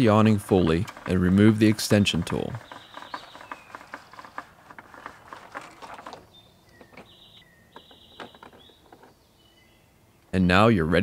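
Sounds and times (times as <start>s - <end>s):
crank mechanism clicks and rattles: 0.0s - 7.1s
birds chirping and trilling: 0.0s - 10.5s.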